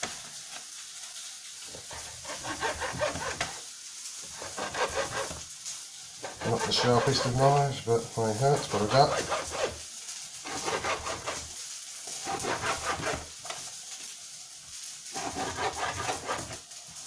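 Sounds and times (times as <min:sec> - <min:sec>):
knife sawing through meat: 0:01.7 - 0:03.6, 0:04.4 - 0:05.4, 0:06.2 - 0:07.7, 0:08.3 - 0:09.8, 0:10.4 - 0:11.5, 0:12.2 - 0:13.3, 0:15.1 - 0:16.6.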